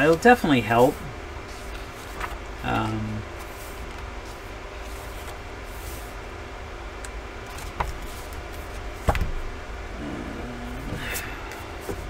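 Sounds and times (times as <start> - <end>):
low room hum: 0.0 - 12.0
book knocking on desk: 9.0 - 9.4.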